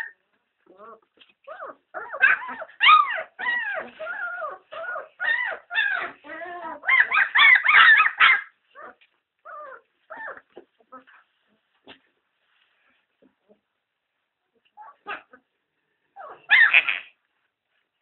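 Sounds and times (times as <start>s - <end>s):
puppies whimpering and yelping: 0.0s - 11.4s, 14.7s - 15.5s, 16.2s - 17.1s.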